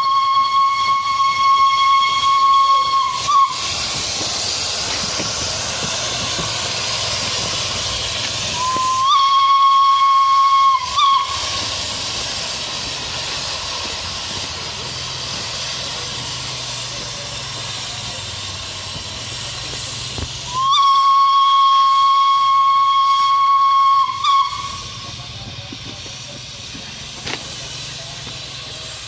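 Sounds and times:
steam whistle: 0.0 - 3.9, 8.4 - 11.8, 20.5 - 25.2
steam hissing: 0.0 - 29.0.

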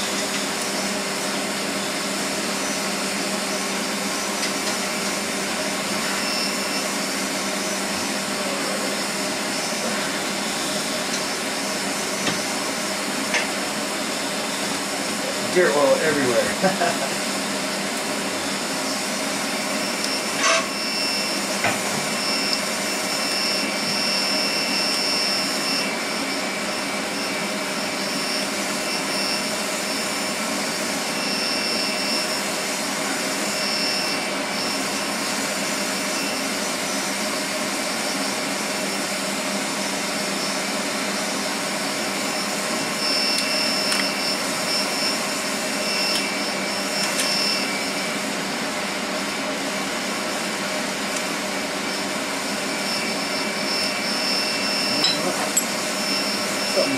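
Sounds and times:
machine drone with high whine: 0.0 - 56.9.

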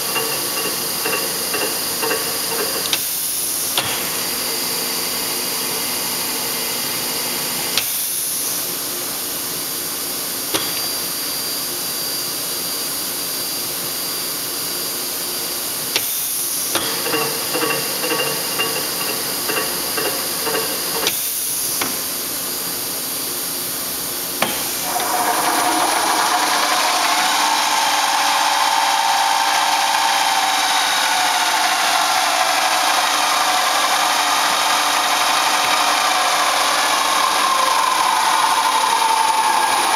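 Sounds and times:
sharp machine clicks: 0.0 - 3.2, 16.7 - 21.5
higher machine running sound: 0.0 - 11.6, 15.4 - 39.9
drilling machine motor hum: 16.8 - 21.5, 24.5 - 39.9.

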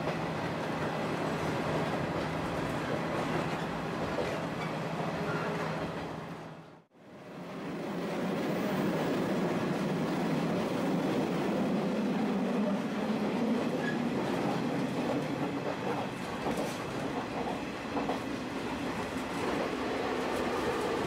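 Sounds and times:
railcar running rumble: 7.3 - 21.0.

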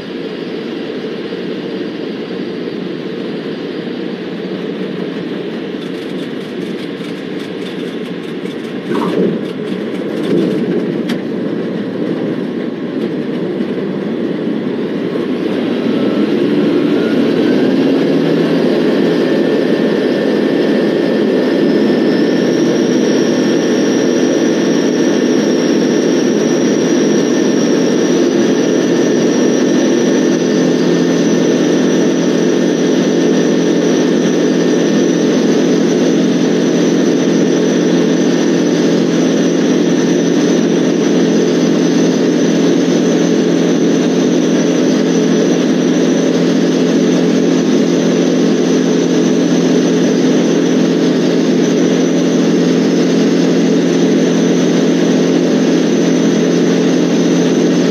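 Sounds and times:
aircraft engine drone: 0.0 - 57.9.

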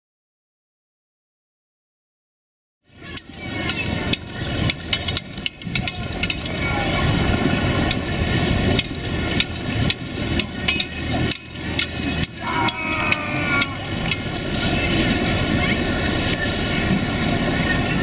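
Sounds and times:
hooves knocking on frozen ground: 3.6 - 16.4.

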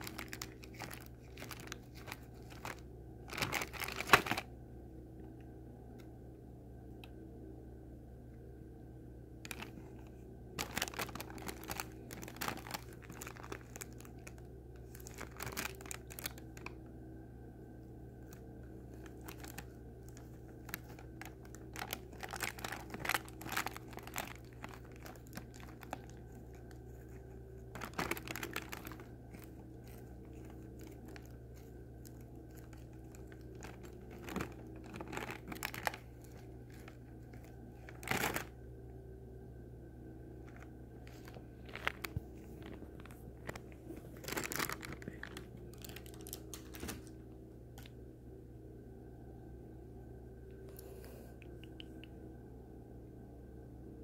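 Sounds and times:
plastic bag crinkling: 0.0 - 4.5, 9.4 - 16.8, 18.2 - 38.6, 40.4 - 47.9
steady low hum: 0.0 - 54.0.

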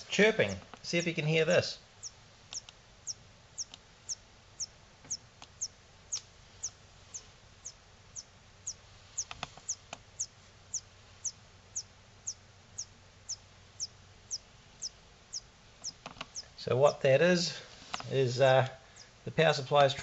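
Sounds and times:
power supply high-pitched chirps: 2.0 - 17.0.

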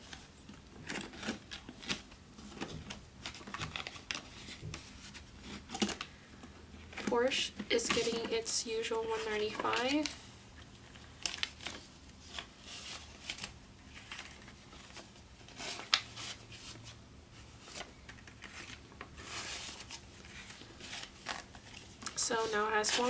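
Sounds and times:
banknotes rustling and flicking: 0.0 - 23.0.

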